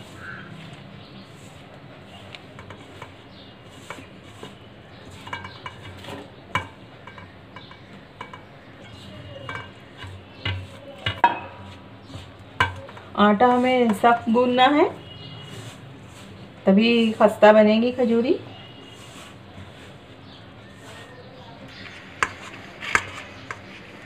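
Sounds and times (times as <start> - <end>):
hand mixing flour in glass bowl: 0.0 - 6.4, 8.6 - 24.0
pan knocking against bowl rim: 5.1 - 11.6, 12.6 - 13.0.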